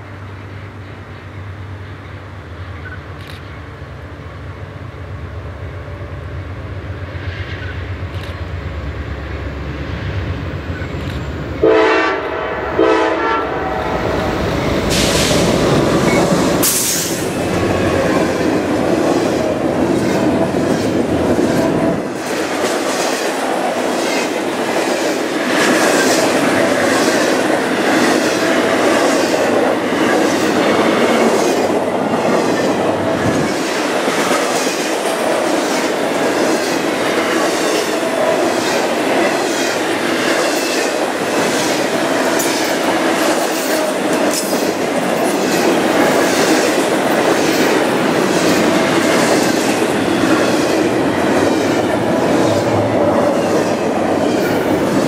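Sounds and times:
diesel train rumble: 0.0s - 55.0s
rhythmic clatter of train wheels: 0.0s - 55.0s
locomotive horn blasts: 11.6s - 14.0s.

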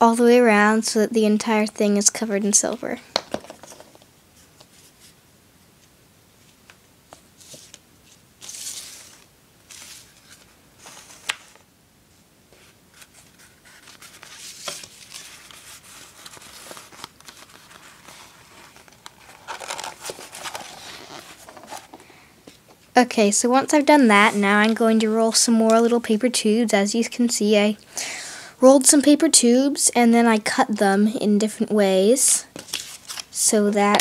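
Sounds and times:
metallic paper rustling and crinkling: 7.4s - 11.6s, 12.5s - 22.0s, 32.6s - 34.0s.

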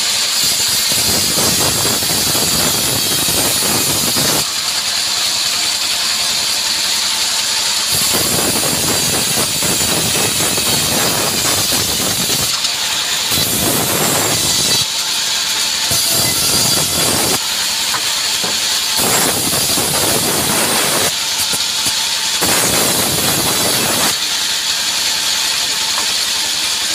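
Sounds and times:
band saw cutting wood: 0.0s - 26.9s.

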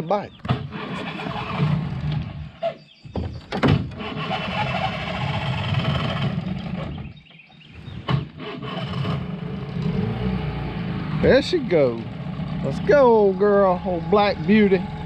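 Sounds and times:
outboard motor running: 4.0s - 7.2s, 7.9s - 15.0s.

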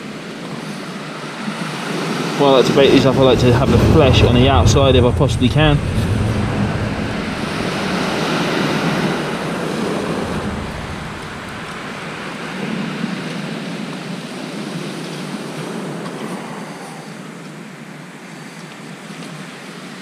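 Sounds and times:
sea surf on shingle beach: 0.1s - 16.0s.

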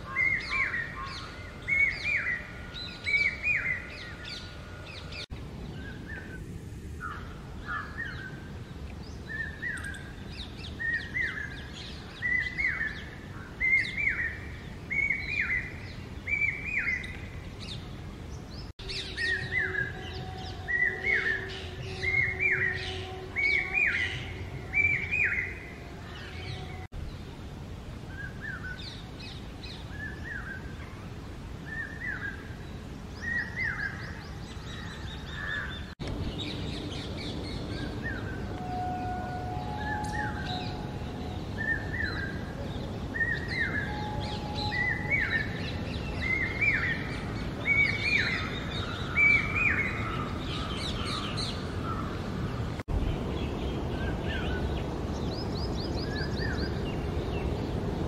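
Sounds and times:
faint steady drone: 0.0s - 58.0s
cuckoo calling: 9.3s - 17.3s, 18.8s - 26.9s, 37.7s - 52.1s.

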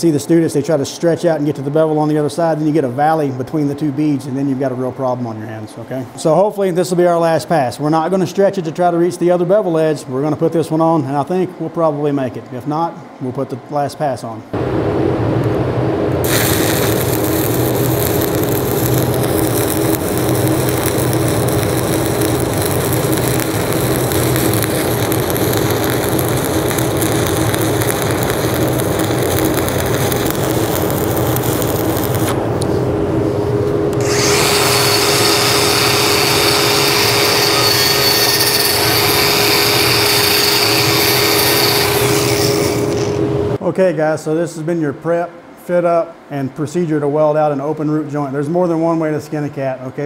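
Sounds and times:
angle grinder whining: 16.2s - 32.4s, 33.9s - 43.4s
welding arc crackling and hissing: 16.2s - 32.8s, 34.0s - 43.3s.

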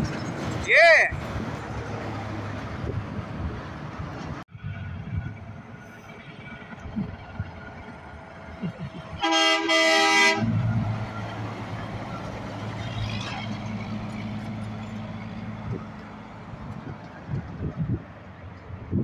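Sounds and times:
diesel truck engine drone: 0.0s - 19.0s
truck air horn blasts: 9.2s - 10.7s.

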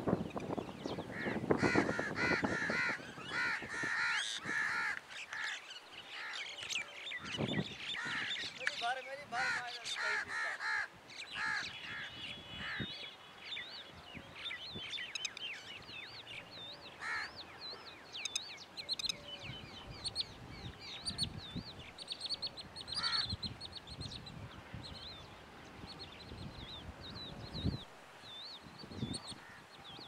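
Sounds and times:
birds chirping and twittering: 0.0s - 30.0s
crow-like cawing: 1.1s - 5.6s, 9.4s - 12.9s, 17.0s - 17.3s, 23.0s - 23.2s.

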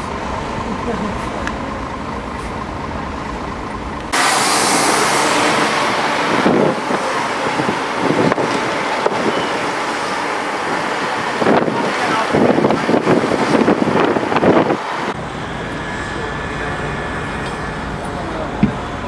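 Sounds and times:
road traffic rumbling: 0.0s - 19.0s
wind buffeting microphone: 5.8s - 15.2s.

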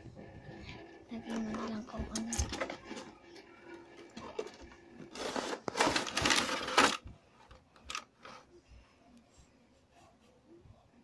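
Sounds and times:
plastic tray scraping out of box: 4.2s - 7.0s.

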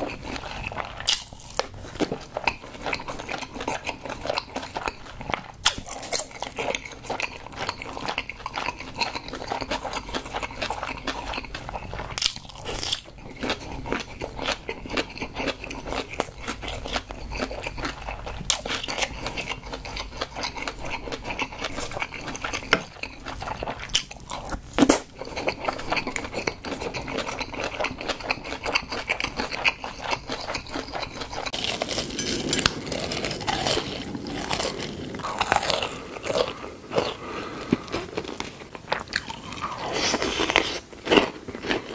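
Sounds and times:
chewing with wet mouth clicks: 0.0s - 32.8s.

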